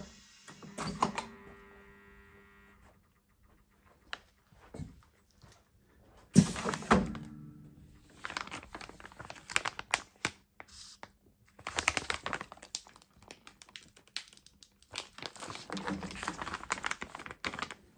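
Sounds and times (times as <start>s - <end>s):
plastic bag crinkling: 8.0s - 17.9s.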